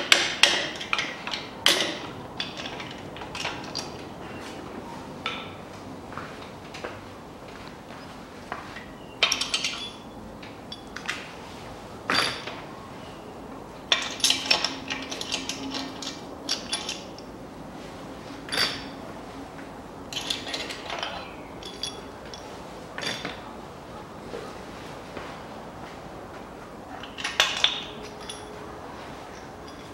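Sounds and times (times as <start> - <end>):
metal parts clinking and clattering: 0.0 - 4.4, 9.2 - 11.3, 12.1 - 12.6, 13.9 - 17.3, 18.5 - 19.0, 20.1 - 23.5, 27.0 - 28.6, 29.3 - 29.9.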